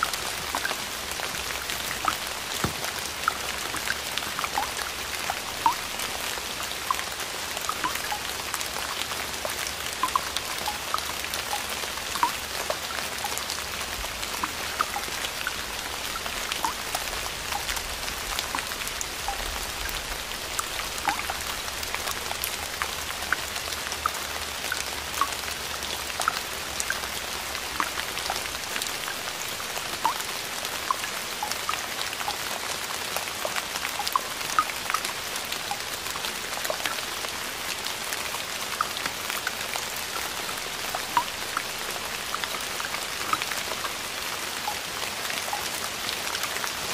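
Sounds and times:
crackling hiss with sharp ticks: 0:00.0 - 0:32.5.

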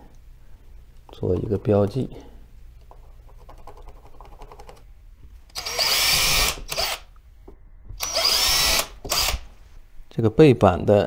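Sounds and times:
power drill boring into wall: 0:05.6 - 0:07.1, 0:08.0 - 0:09.5.

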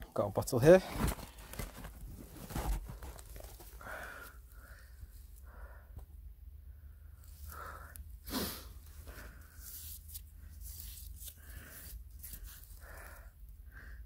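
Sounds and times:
gloved hands scraping soil: 0:08.3 - 0:13.2.

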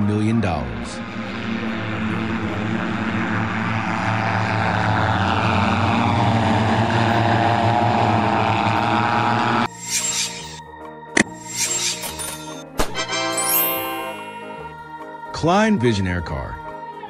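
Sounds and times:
electric fans whining: 0:00.0 - 0:09.7.

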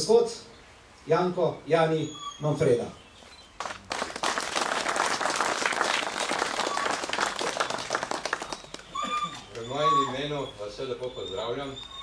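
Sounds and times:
crowd applauding: 0:03.6 - 0:09.5.

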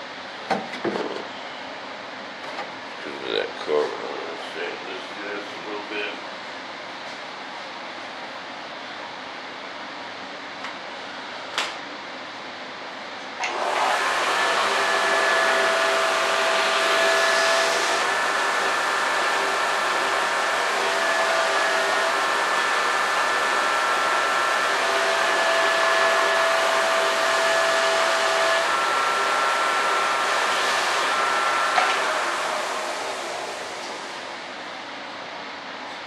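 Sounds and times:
electric blower running: 0:13.4 - 0:34.6.

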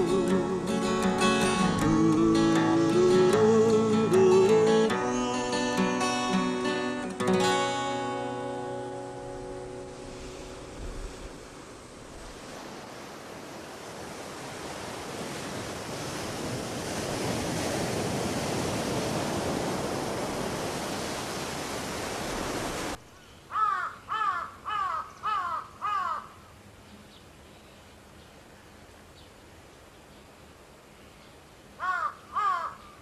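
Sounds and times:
surf breaking over rocks: 0:08.9 - 0:23.0
crow cawing: 0:23.5 - 0:26.4, 0:31.8 - 0:33.0.

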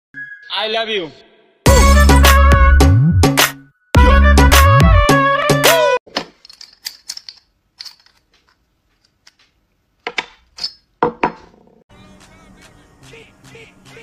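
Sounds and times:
intro music: 0:01.7 - 0:05.9
knocks on wooden table: 0:11.0 - 0:11.6.

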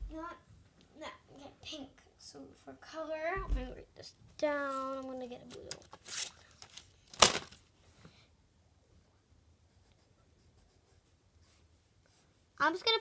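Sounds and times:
rustling and handling noises: 0:03.5 - 0:08.2.

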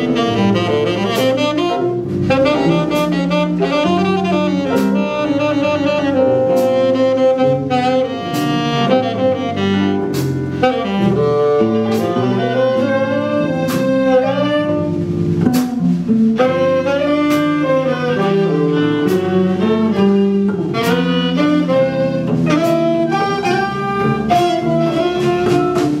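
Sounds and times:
jazz band playing: 0:00.0 - 0:26.0
saxophone: 0:00.0 - 0:26.0
cymbal and drum strikes: 0:10.1 - 0:11.3, 0:14.9 - 0:16.6.

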